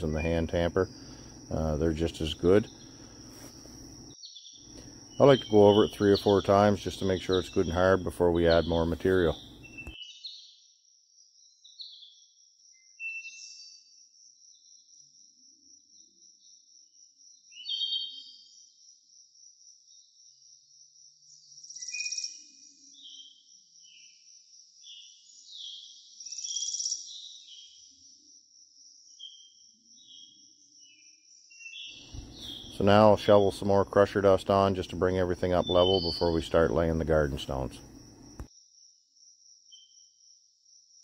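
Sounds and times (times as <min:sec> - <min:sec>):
birds chirping and calling: 0:00.0 - 0:03.6, 0:04.6 - 0:10.0, 0:31.7 - 0:38.3
insects trilling: 0:00.0 - 0:10.2, 0:10.9 - 0:41.0.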